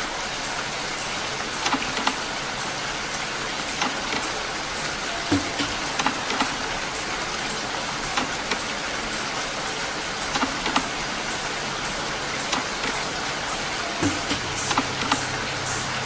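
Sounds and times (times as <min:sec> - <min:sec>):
steady rain hiss: 0:00.0 - 0:16.0
raindrop taps: 0:01.6 - 0:02.4, 0:03.6 - 0:04.5, 0:05.2 - 0:06.8, 0:08.1 - 0:08.8, 0:10.2 - 0:11.0, 0:12.4 - 0:13.1, 0:14.0 - 0:15.4.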